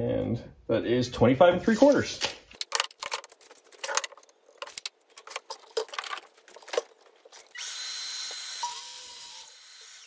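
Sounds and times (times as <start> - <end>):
miter saw whine: 7.5 - 10.0.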